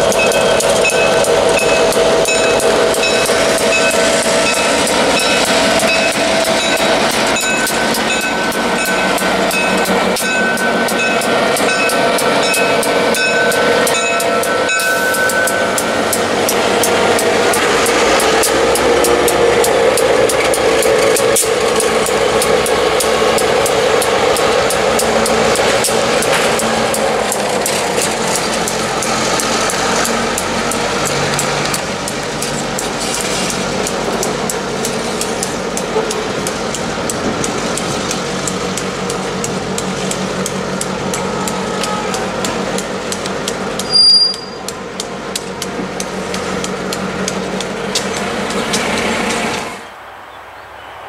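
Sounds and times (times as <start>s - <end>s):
high-pitched squeal: 0.0s - 33.7s, 43.8s - 44.7s
wheels clicking over rail joints: 0.0s - 49.9s
diesel locomotive running: 0.0s - 51.0s.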